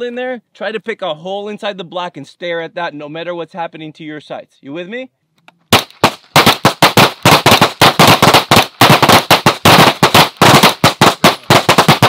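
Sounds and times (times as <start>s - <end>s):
pistols firing rapidly: 5.7s - 12.0s.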